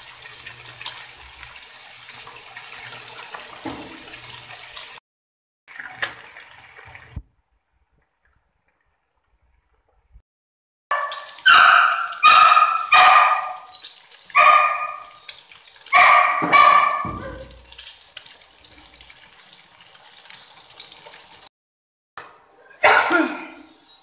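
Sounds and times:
dog barking: 10.9s - 13.7s, 14.3s - 15.2s, 15.9s - 17.6s.

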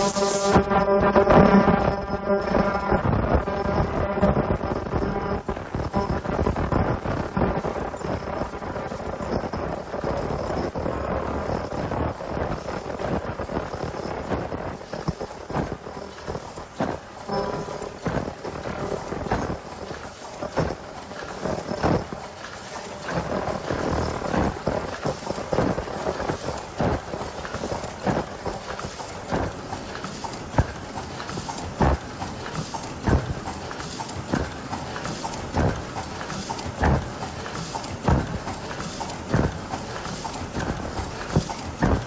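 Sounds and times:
machine clattering: 5.7s - 42.0s
loud machine clack: 16.1s - 42.0s.

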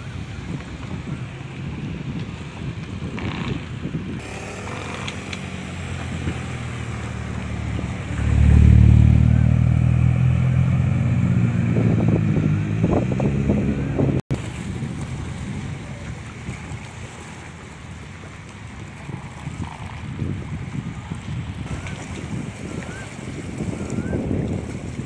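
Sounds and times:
vehicle engine passing by: 4.2s - 15.6s.

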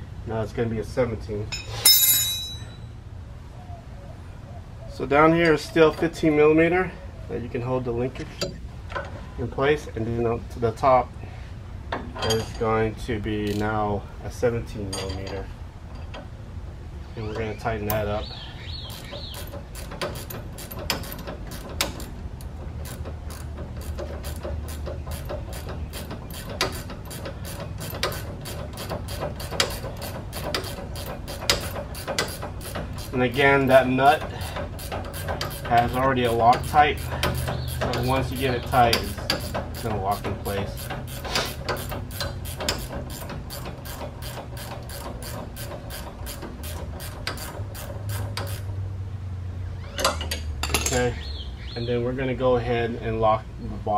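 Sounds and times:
hand ratchet clicking: 18.8s - 48.7s.

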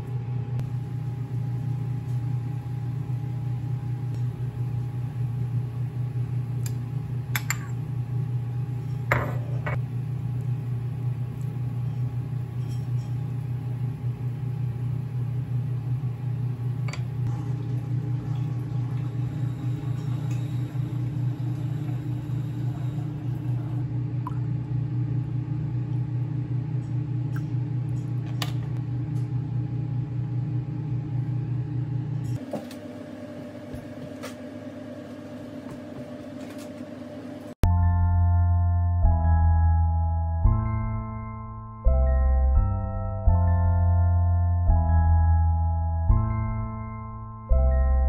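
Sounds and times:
higher-pitched steady hum: 0.0s - 37.6s
kitchen appliance humming: 0.0s - 37.6s.

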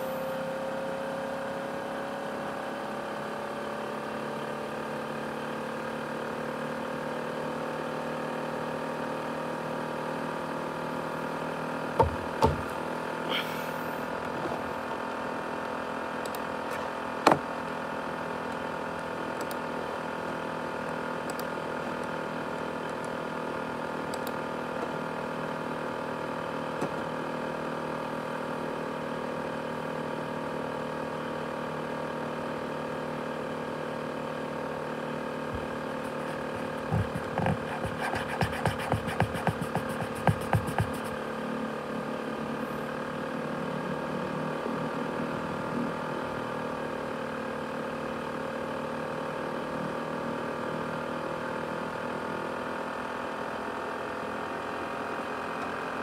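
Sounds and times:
laptop cooling fan whirring: 35.3s - 47.1s.

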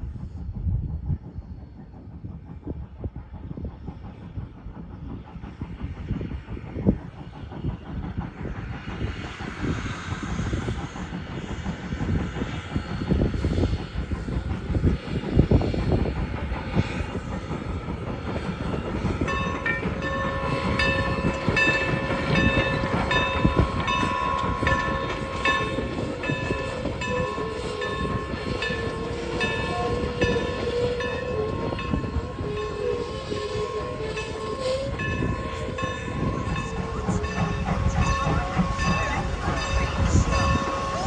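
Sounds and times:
steam train rumbling past: 0.0s - 41.0s
locomotive bell ringing: 19.2s - 41.0s.

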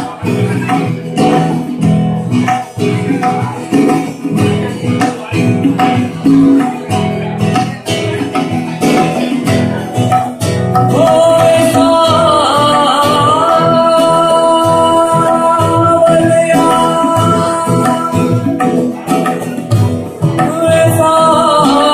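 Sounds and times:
strummed acoustic guitar: 0.0s - 21.9s
tabla: 0.0s - 21.9s.

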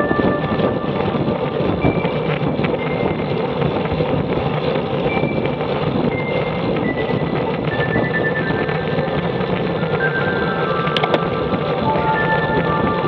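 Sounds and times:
faint high tones: 0.0s - 1.6s
wind rushing over microphone: 0.0s - 13.0s.

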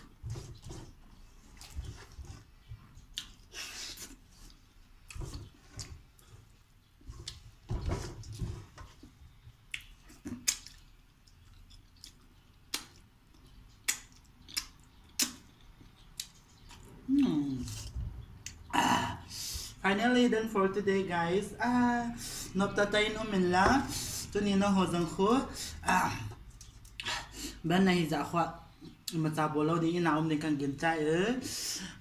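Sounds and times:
person chewing and lip smacking: 2.8s - 6.3s, 9.6s - 18.7s.

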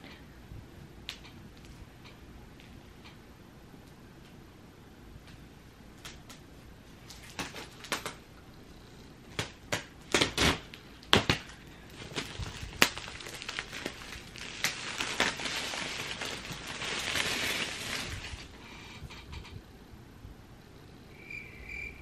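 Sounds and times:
plastic shrink-wrap crackling: 7.0s - 8.2s, 9.4s - 18.6s.

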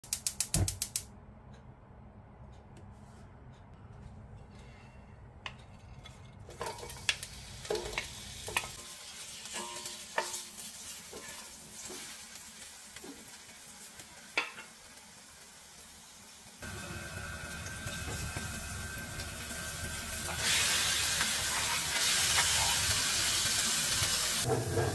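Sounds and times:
onions sizzling in oil: 6.6s - 24.9s.

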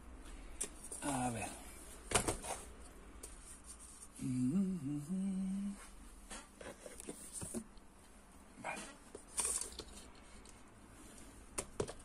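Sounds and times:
man humming: 4.1s - 5.8s.

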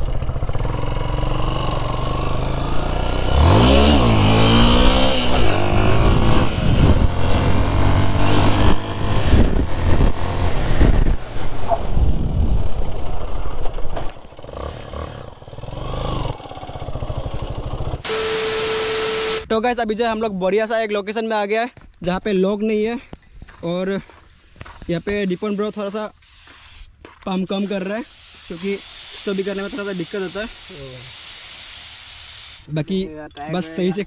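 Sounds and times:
motorcycle engine revving: 0.0s - 19.5s.

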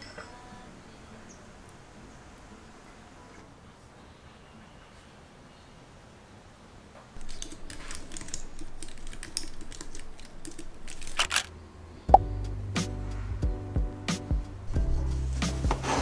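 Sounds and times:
music: 12.1s - 16.0s.

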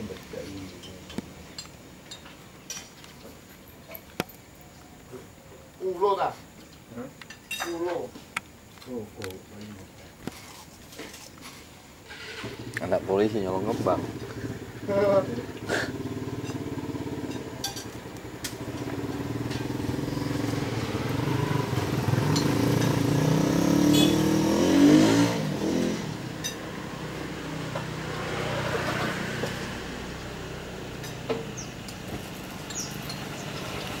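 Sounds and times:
vehicle engine running: 12.5s - 34.0s.

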